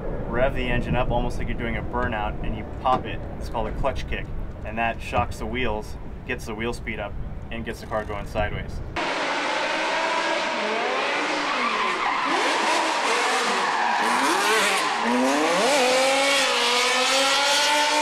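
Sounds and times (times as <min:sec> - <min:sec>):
car engine revving: 0:09.0 - 0:18.0
tyres skidding: 0:09.0 - 0:18.0.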